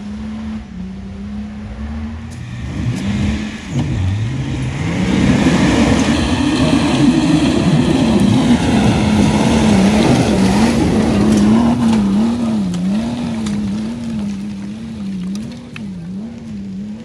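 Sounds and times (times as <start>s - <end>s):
diesel engine revving: 0.0s - 17.0s
debris clicks: 11.2s - 16.2s.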